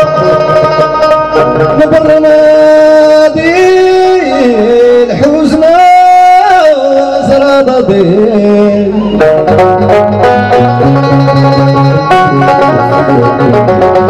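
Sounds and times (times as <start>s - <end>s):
man singing into microphone: 0.0s - 0.9s, 1.5s - 9.6s
plucked banjo: 0.0s - 5.6s, 6.8s - 14.0s.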